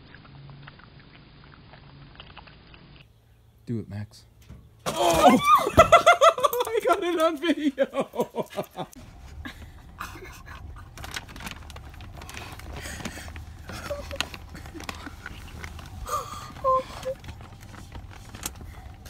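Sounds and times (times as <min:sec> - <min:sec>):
child crying and sniffling: 0:16.0 - 0:17.2
child whimpering: 0:16.0 - 0:17.2.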